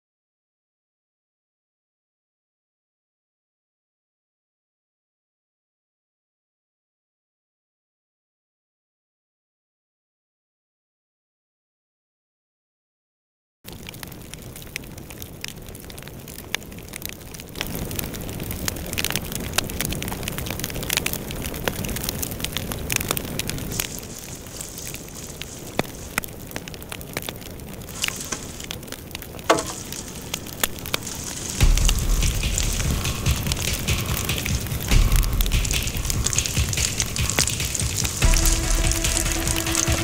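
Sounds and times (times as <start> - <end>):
bonfire crackling and popping: 13.7 - 40.0
low rumble: 29.8 - 40.0.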